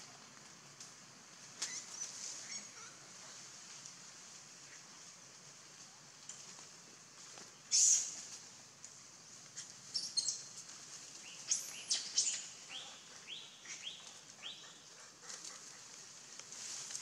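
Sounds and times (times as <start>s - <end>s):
small birds chirping: 7.6s - 8.2s, 9.5s - 10.6s, 11.2s - 15.1s.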